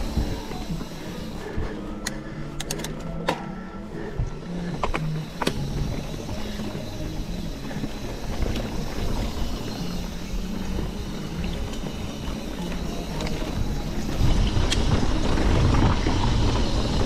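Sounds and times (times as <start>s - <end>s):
bike rattles and clicks: 0.0s - 17.0s
tyres rumbling on dirt: 5.3s - 17.0s.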